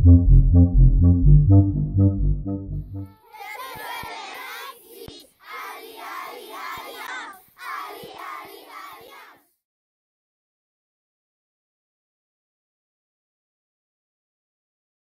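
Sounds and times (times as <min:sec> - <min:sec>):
children shouting a cheer: 0:03.1 - 0:09.5.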